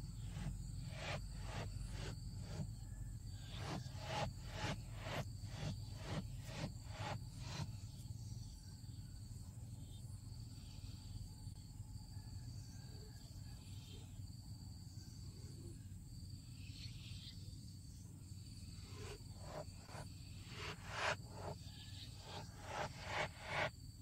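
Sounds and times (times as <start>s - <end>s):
low hum: 0.0s - 7.9s, 18.6s - 23.7s
thin high-pitched whine: 0.0s - 11.0s, 16.6s - 24.0s.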